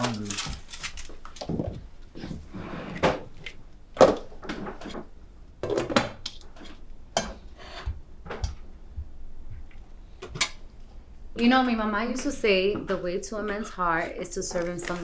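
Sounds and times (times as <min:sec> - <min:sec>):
dishes knocking and clattering: 0:04.0 - 0:08.6.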